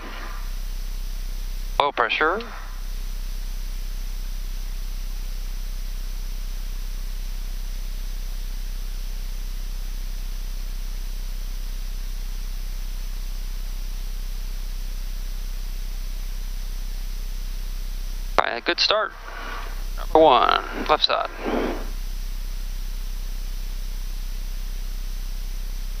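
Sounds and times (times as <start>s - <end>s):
jet cockpit hiss: 0.0s - 1.0s, 1.7s - 3.0s, 18.4s - 22.8s
low constant hum: 0.0s - 26.0s.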